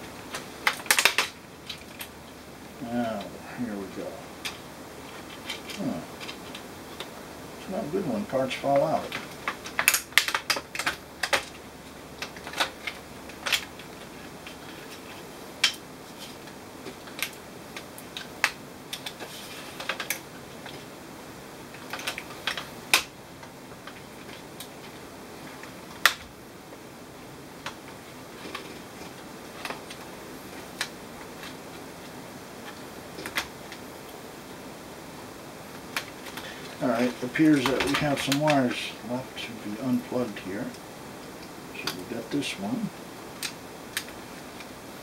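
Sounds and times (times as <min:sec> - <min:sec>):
plastic laptop case clicking: 0:09.2 - 0:11.6.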